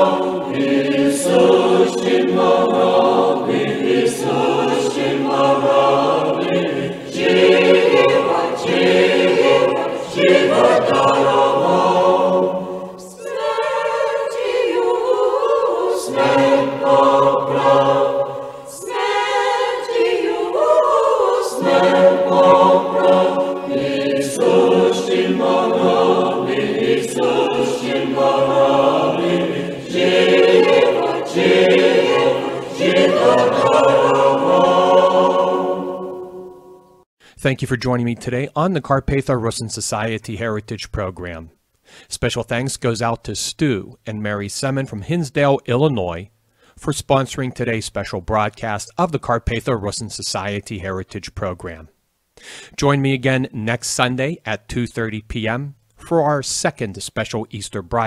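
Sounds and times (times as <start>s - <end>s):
choir singing a hymn unaccompanied: 0.0s - 37.0s.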